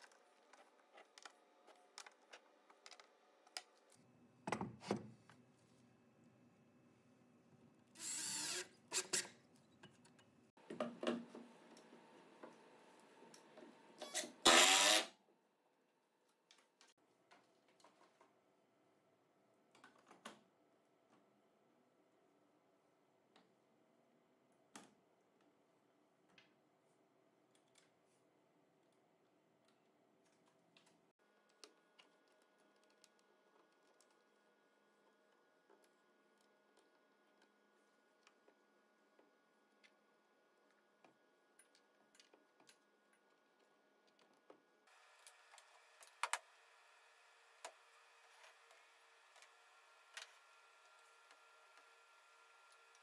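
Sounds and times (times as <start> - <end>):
power drill running: 8.0 - 9.2, 14.0 - 15.1.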